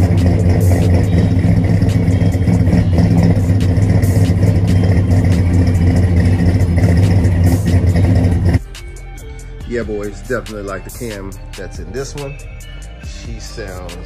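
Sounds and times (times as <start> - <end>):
engine exhaust idling: 0.0 - 14.0.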